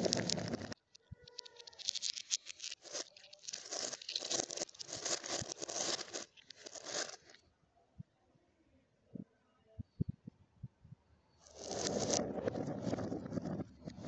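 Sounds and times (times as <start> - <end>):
plastic bag crinkling: 0.0 - 7.4, 11.5 - 12.4.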